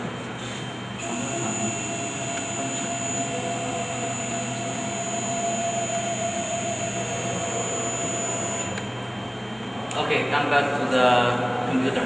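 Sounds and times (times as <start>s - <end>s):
engraving machine whine: 0.6s - 10.2s.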